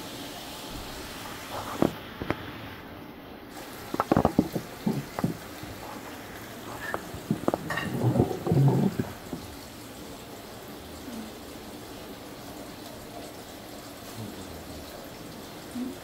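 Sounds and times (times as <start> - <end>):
kitchen clatter: 3.6 - 9.7
kitchen knocks and handling: 3.8 - 9.5.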